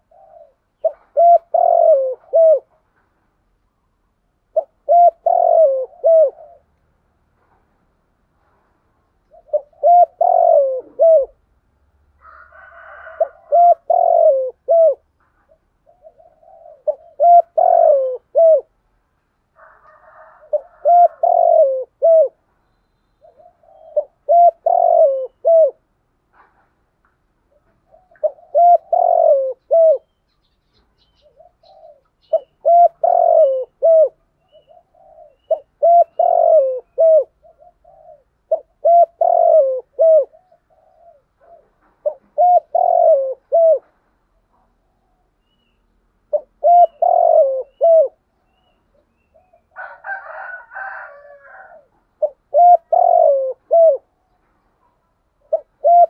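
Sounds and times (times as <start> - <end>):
dove cooing: 0.0 - 3.0, 4.3 - 6.7, 9.2 - 11.5, 12.2 - 18.8, 19.6 - 22.5, 23.2 - 26.6, 27.5 - 30.2, 30.8 - 45.6, 46.2 - 56.0.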